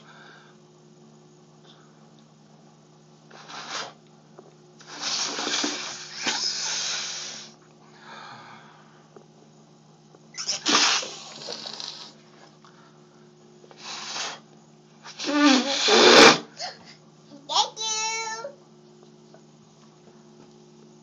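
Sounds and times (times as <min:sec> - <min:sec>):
child blowing and hissing: 0:03.3 - 0:04.0, 0:04.8 - 0:07.6, 0:10.4 - 0:12.2, 0:13.7 - 0:16.9.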